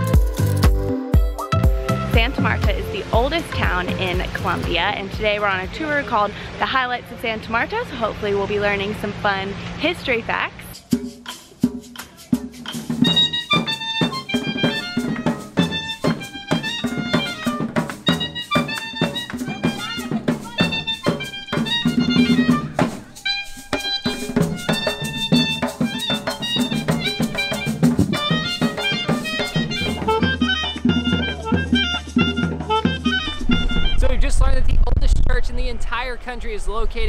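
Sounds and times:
hand drums beating fast: 0.0s - 5.9s, 10.7s - 34.1s
melody instrument: 0.0s - 8.7s, 12.8s - 34.0s.

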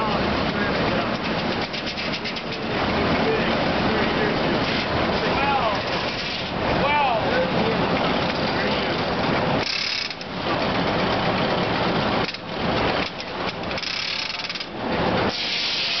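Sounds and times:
log carriage clattering: 0.0s - 15.3s
high steam hiss: 15.3s - 16.0s.

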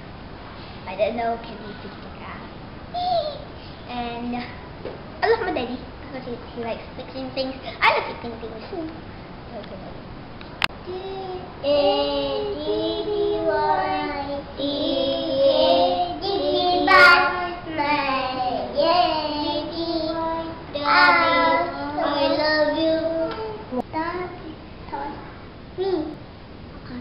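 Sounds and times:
children singing: 11.7s - 23.6s.

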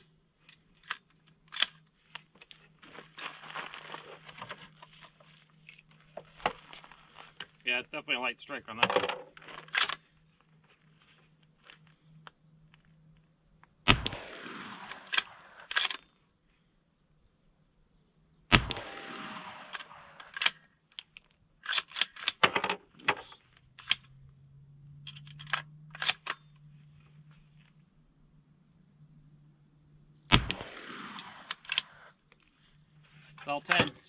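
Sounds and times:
rifle bolt clicking and clacking: 0.8s - 1.8s, 8.8s - 10.0s, 14.9s - 16.1s, 19.7s - 24.1s, 25.1s - 26.5s, 31.2s - 32.0s
rifle shots with echo: 13.9s - 15.7s, 18.5s - 20.3s, 30.3s - 32.1s.

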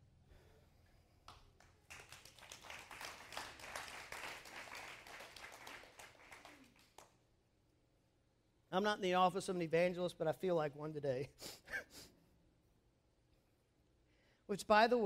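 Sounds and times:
congregation applauding: 1.6s - 7.2s.

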